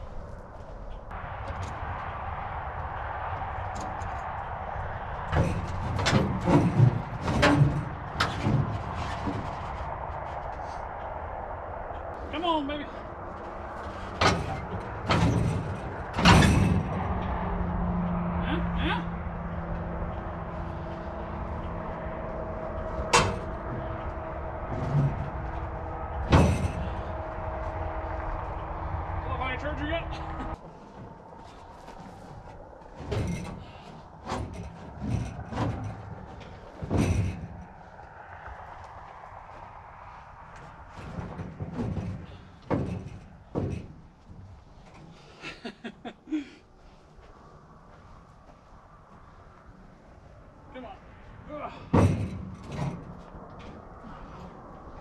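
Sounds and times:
ringing sheet-metal bangs: 0:03.1 - 0:10.1, 0:13.5 - 0:17.6, 0:19.4 - 0:29.6
dull thump: 0:40.9 - 0:44.4.

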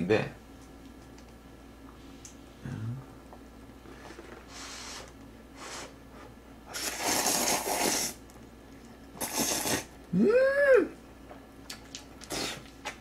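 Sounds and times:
person slurping noodles: 0:06.7 - 0:08.2, 0:09.2 - 0:09.9, 0:12.2 - 0:12.7.

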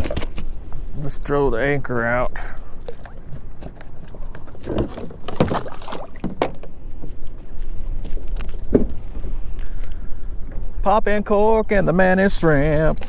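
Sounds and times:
knocks and thumps on kayak: 0:02.9 - 0:07.2.

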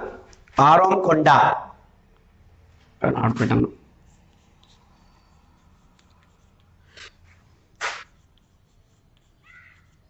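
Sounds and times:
chalk writing on blackboard: 0:03.8 - 0:10.0
short sharp noises: 0:07.8 - 0:08.2.

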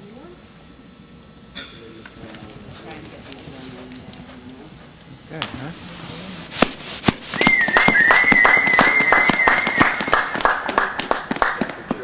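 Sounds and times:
spectators clapping in rhythm: 0:07.1 - 0:12.0
loud wavering whistle: 0:07.2 - 0:10.6.

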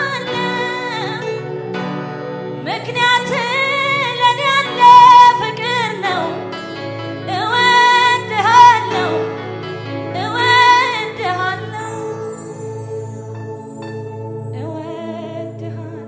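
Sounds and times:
woman singing gospel song: 0:00.0 - 0:01.4, 0:02.6 - 0:06.5, 0:07.3 - 0:09.4, 0:10.1 - 0:12.8, 0:14.5 - 0:16.0
sustained instrumental backing: 0:09.1 - 0:14.6.

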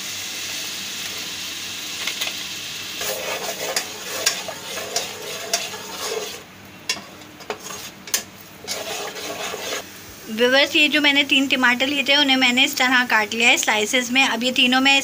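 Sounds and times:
spices sizzling in hot oil: 0:00.0 - 0:14.9
spoon scraping metal pan: 0:03.0 - 0:09.8.

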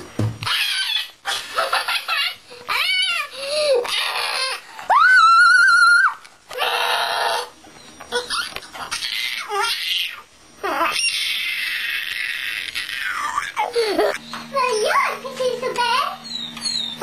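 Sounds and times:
woman shrieking like a bird: 0:03.8 - 0:07.5.

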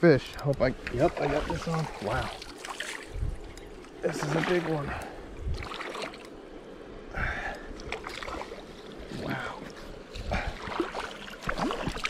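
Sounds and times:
water splashing: 0:00.7 - 0:06.3, 0:07.8 - 0:12.0
stream rushing: 0:00.8 - 0:06.3.

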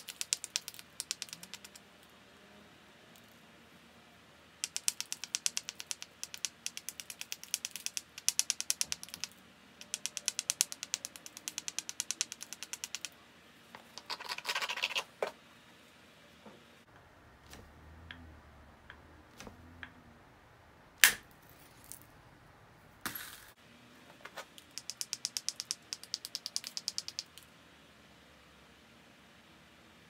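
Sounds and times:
stone scraping flint: 0:13.9 - 0:15.1.

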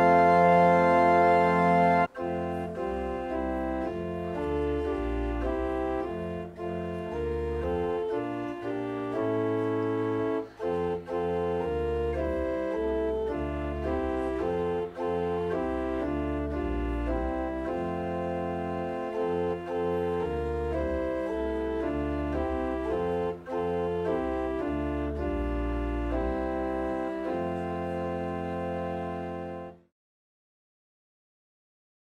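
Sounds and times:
church organ playing chords: 0:00.0 - 0:29.9.

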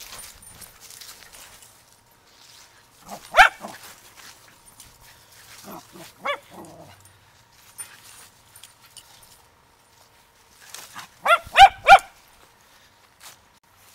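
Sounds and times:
small dog barking: 0:03.0 - 0:03.9, 0:05.6 - 0:07.0, 0:11.0 - 0:12.2.

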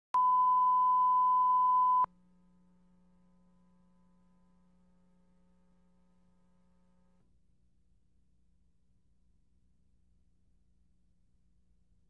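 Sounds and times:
pure-tone test beep: 0:00.2 - 0:02.1.

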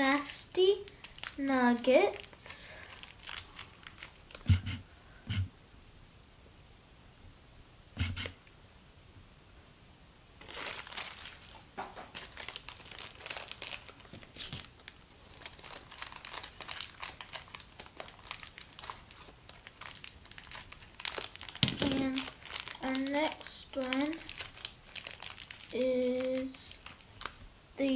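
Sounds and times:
plastic bag crinkling and tearing: 0:00.0 - 0:04.5, 0:10.4 - 0:27.4
short low thump: 0:04.5 - 0:05.5.

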